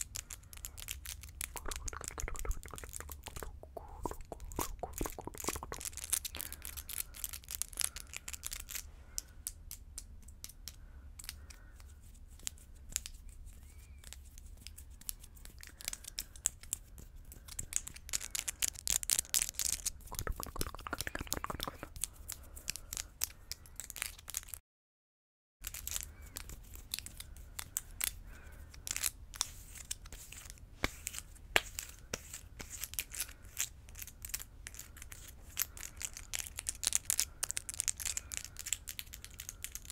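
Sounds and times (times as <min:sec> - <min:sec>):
acrylic nails clicking together: 0:00.0 - 0:11.5, 0:15.0 - 0:24.4, 0:33.9 - 0:39.9.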